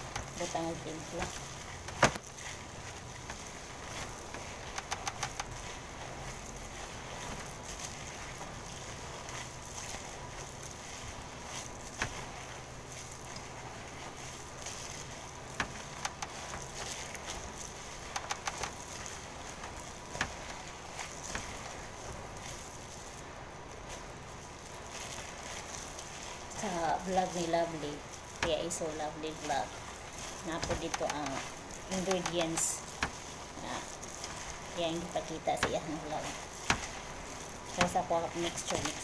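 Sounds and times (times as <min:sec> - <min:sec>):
hands squelching meat mixture: 0:00.0 - 0:39.0.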